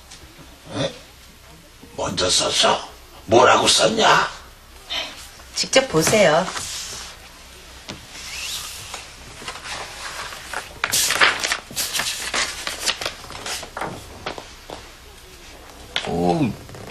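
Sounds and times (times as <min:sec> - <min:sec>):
notebook pages rustling: 0:08.3 - 0:14.9.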